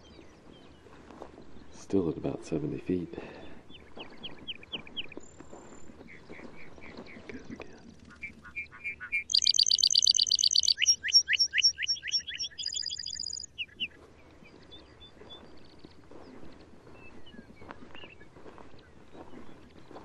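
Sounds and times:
bird singing trills: 8.0s - 14.0s.

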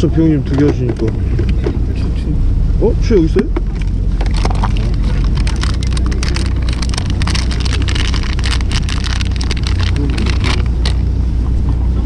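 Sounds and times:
boat engine rumbling: 0.0s - 12.0s
wind noise: 0.0s - 12.0s.

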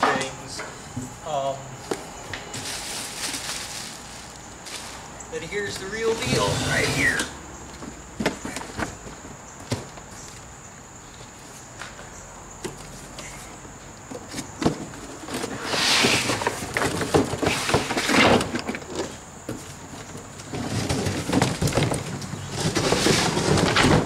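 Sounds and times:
cardboard box scraping and rustling: 6.0s - 7.3s, 15.0s - 19.7s, 20.5s - 24.0s.

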